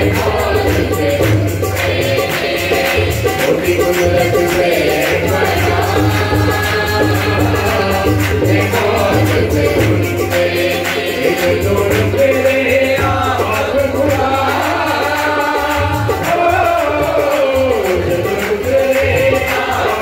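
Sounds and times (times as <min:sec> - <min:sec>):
harmonium chords: 0:00.0 - 0:20.0
man singing: 0:00.0 - 0:20.0
tabla strokes: 0:00.0 - 0:20.0.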